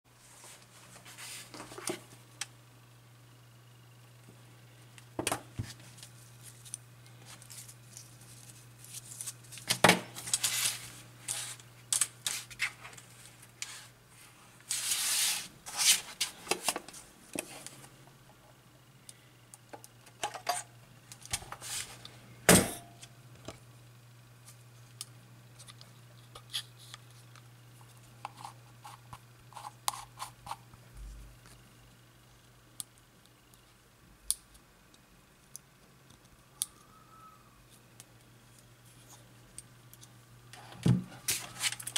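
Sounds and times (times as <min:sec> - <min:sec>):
low steady hum: 0:00.1 - 0:41.9.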